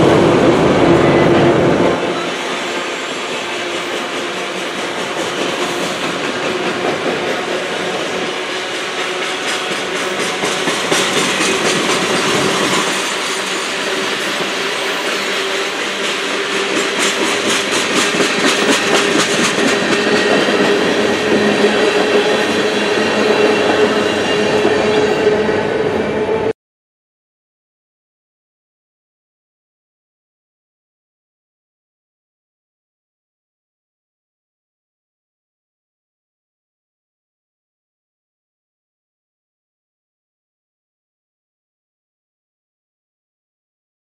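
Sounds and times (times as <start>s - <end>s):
train cars clacking over rail joints: 3.3s - 25.4s.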